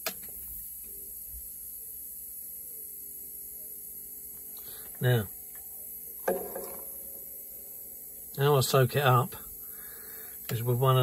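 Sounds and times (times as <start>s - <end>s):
electrical hum and hiss: 0.0s - 11.0s.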